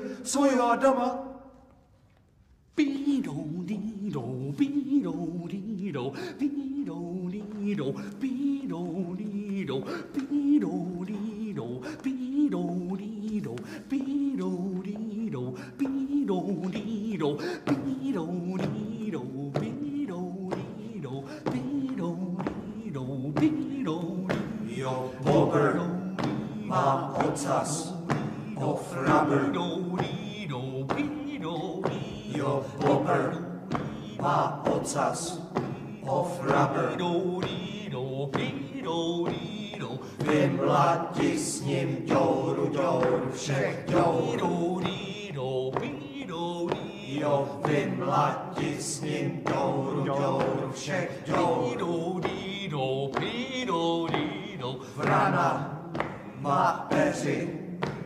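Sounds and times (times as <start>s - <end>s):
group of voices chanting: 24.2s - 53.2s, 53.8s - 58.0s.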